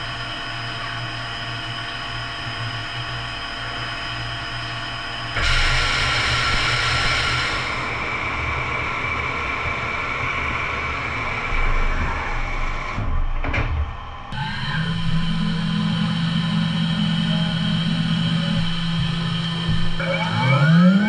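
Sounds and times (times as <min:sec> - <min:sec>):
grinder running: 0:14.3 - 0:21.0.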